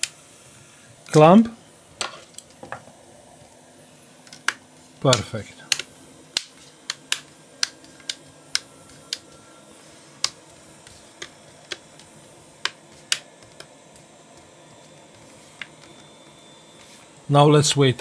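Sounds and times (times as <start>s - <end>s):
sharp irregular clicks and taps: 4.4s - 9.2s.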